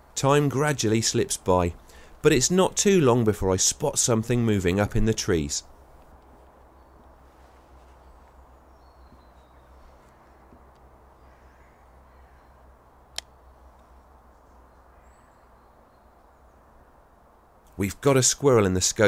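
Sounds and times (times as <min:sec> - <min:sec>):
distant traffic rumble: 0:00.0 - 0:19.0
faint bird calls: 0:06.8 - 0:17.0.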